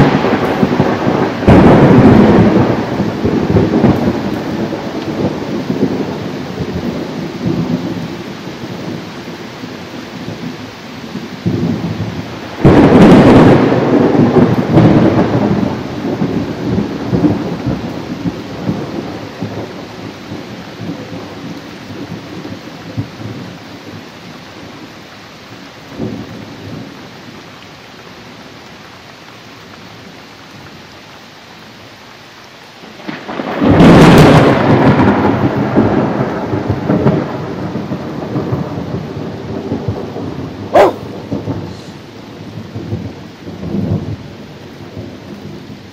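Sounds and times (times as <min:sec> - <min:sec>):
rolling thunder claps: 0:00.0 - 0:08.0, 0:11.4 - 0:23.6, 0:33.0 - 0:45.6
steady rain: 0:00.0 - 0:45.9.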